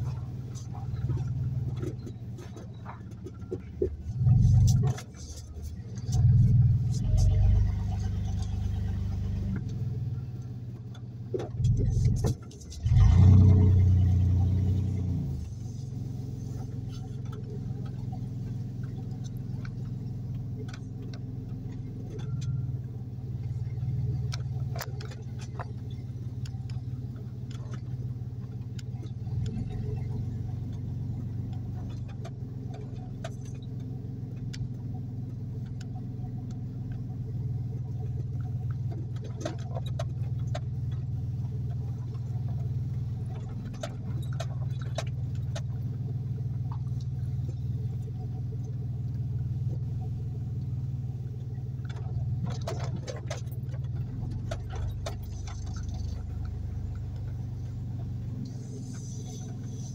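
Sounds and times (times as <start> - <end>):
car engine and road noise: 0.0 - 59.9
small knocks and rattles: 16.4 - 50.6, 51.2 - 59.9.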